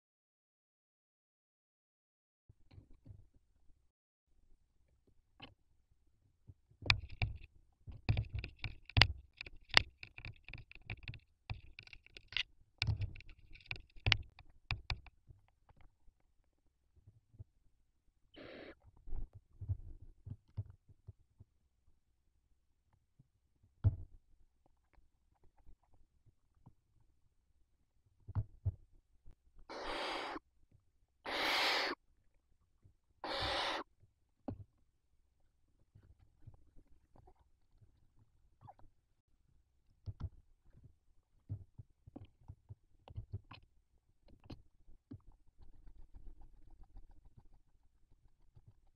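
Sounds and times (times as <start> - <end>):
barn owls hissing: 18.3 - 18.8, 29.7 - 30.4, 31.2 - 32.0, 33.2 - 33.9.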